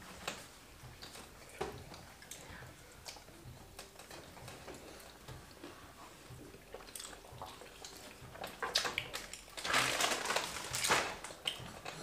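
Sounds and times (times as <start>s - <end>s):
noisy smacking: 0.0s - 12.0s
chewing and wet mouth noises: 0.9s - 9.9s, 10.8s - 12.0s.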